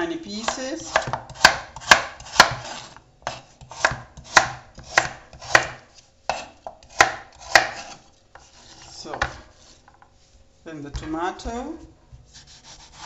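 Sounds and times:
knife chopping on wooden board: 0:00.4 - 0:08.5.

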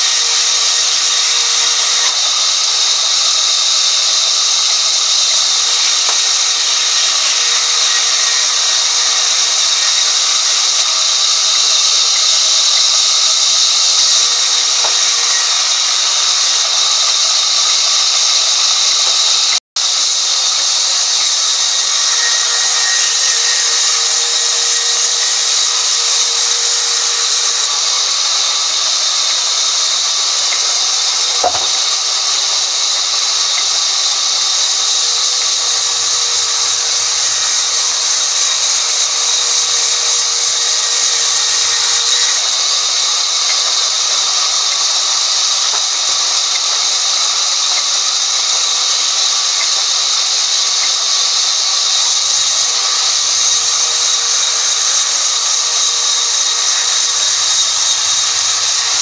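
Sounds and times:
band saw cutting log: 0:00.0 - 0:59.0
sharp knock: 0:31.4 - 0:31.8.

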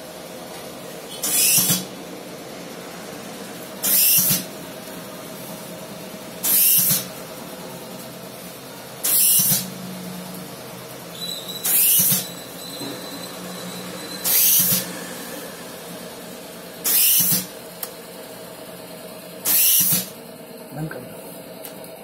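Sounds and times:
machine hum: 0:00.0 - 0:22.0
spray nozzle hissing: 0:03.8 - 0:04.4, 0:06.4 - 0:07.1, 0:09.0 - 0:09.7, 0:11.6 - 0:12.2, 0:16.8 - 0:17.5, 0:19.5 - 0:20.1.

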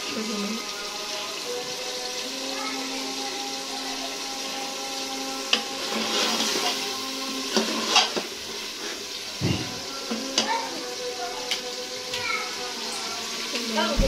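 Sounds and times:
curry sizzling in pot: 0:00.0 - 0:14.0.

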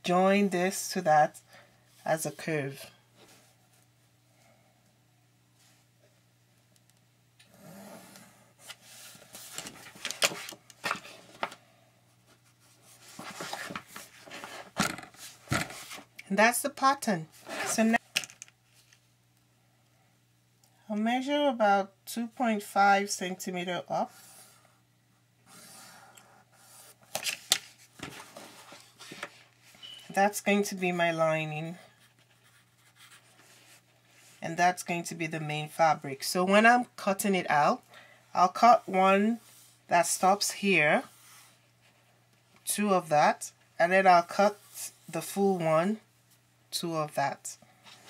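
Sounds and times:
pencil scratching on paper: 0:32.0 - 0:33.8.

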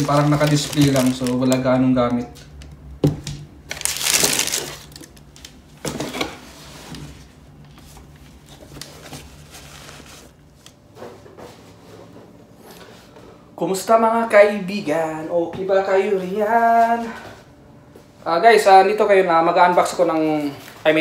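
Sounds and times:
cardboard and tissue paper rustling: 0:00.0 - 0:02.2, 0:03.7 - 0:10.6.

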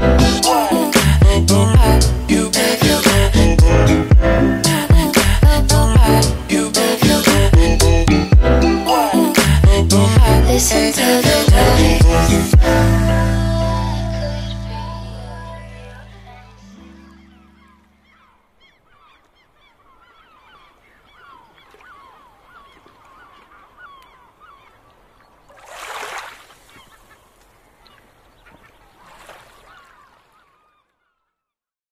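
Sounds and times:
music: 0:00.0 - 0:17.8.

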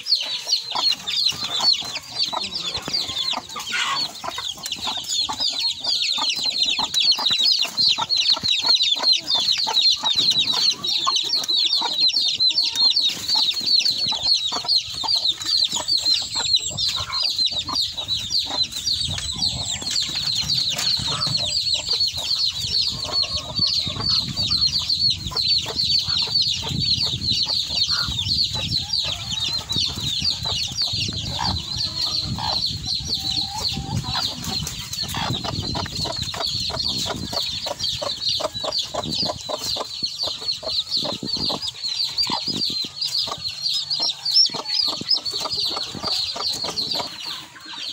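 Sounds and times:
chicks peeping: 0:00.0 - 0:47.9
hen clucking: 0:00.0 - 0:47.9.

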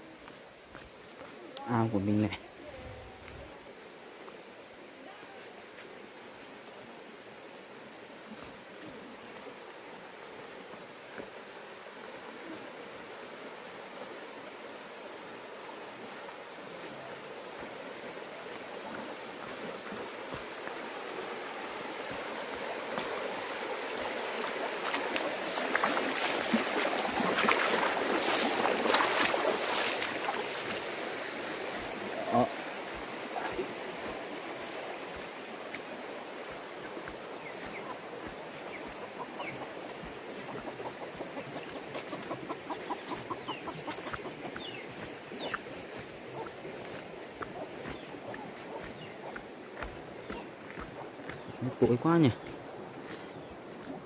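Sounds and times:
footsteps on muddy path: 0:00.0 - 0:12.0, 0:16.1 - 0:54.0
rushing stream: 0:00.0 - 0:54.0
animal clucking call: 0:40.4 - 0:44.8, 0:47.4 - 0:49.5.

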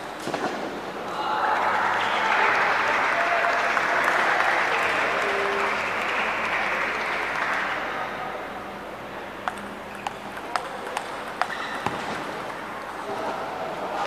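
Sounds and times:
spectators applauding: 0:01.3 - 0:08.3
table tennis ball clicking: 0:09.4 - 0:13.0.

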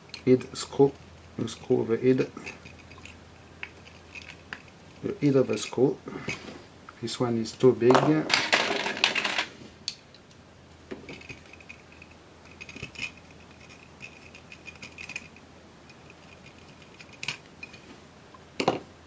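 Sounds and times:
metallic tool clatter: 0:02.3 - 0:06.4, 0:11.0 - 0:17.8.

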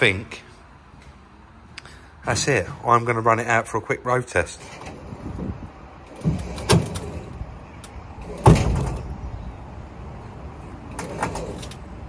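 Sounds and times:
low vehicle rumble: 0:04.4 - 0:12.0
metal knocks and clunks: 0:04.6 - 0:09.2.

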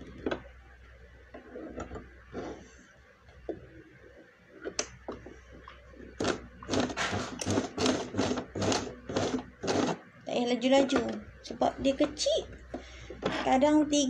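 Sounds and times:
sewing machine stitching: 0:06.2 - 0:10.0.

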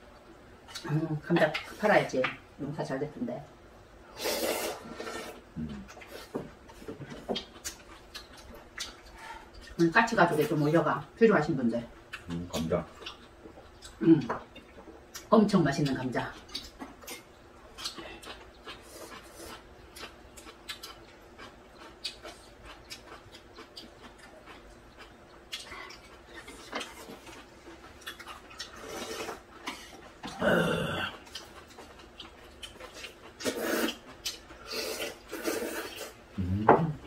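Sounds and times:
slurping noodles: 0:04.2 - 0:05.4, 0:33.4 - 0:34.0.

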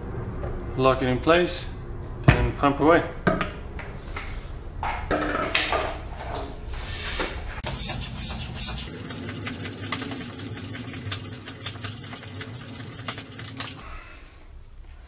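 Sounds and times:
bicycle pump strokes clicking: 0:07.6 - 0:13.8.

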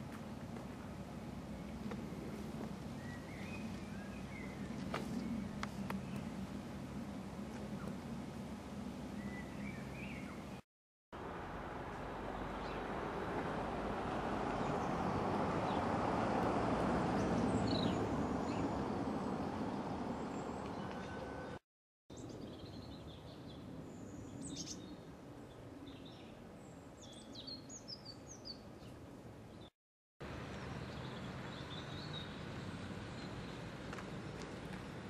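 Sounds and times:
small birds chirping: 0:02.8 - 0:06.5, 0:09.1 - 0:10.6, 0:17.1 - 0:29.7, 0:30.5 - 0:34.5.

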